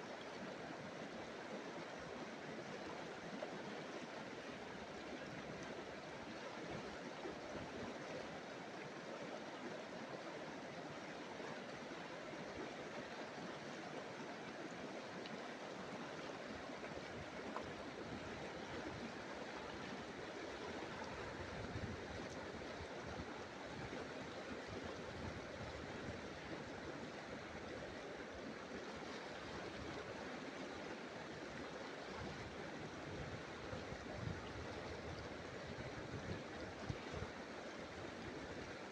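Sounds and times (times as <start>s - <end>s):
river water rushing over stones: 0.0s - 38.9s.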